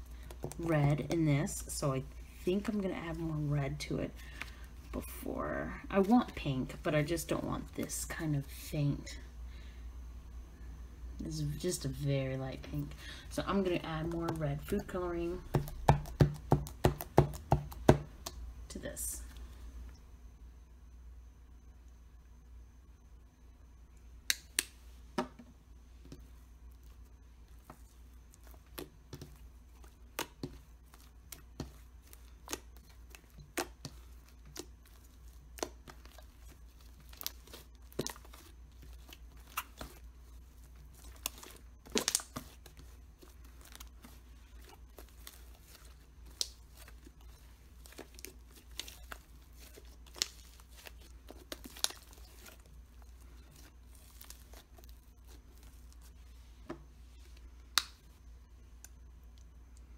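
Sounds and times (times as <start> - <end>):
slime popping and crackling: 28.4 - 40.1, 40.9 - 53.2.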